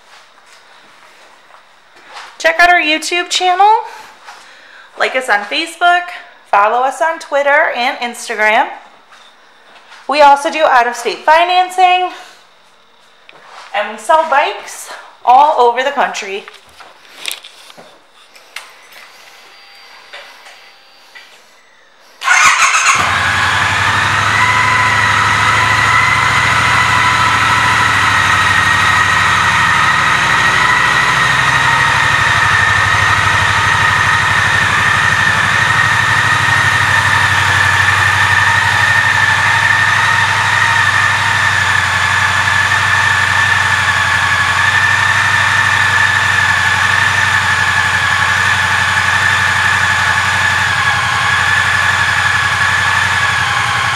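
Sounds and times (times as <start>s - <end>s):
motorcycle engine idling: 22.2s - 53.9s
high whine: 23.0s - 52.9s.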